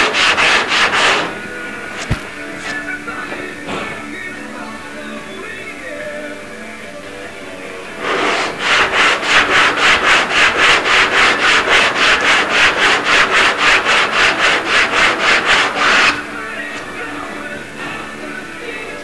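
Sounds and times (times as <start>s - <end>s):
hand sanding strokes: 0.0s - 1.4s, 8.0s - 16.2s.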